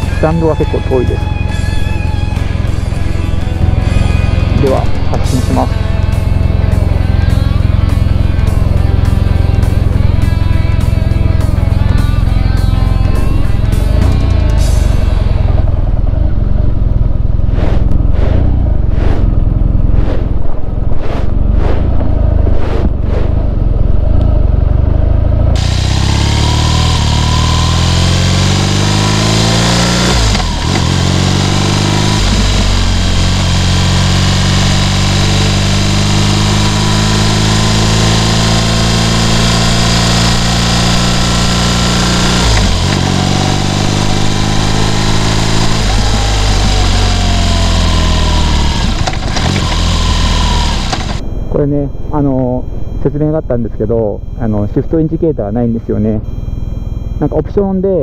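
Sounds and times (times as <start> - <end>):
rock music with steady beat: 0.0 - 15.7
motorcycle riding away: 0.0 - 19.9, 23.2 - 51.2.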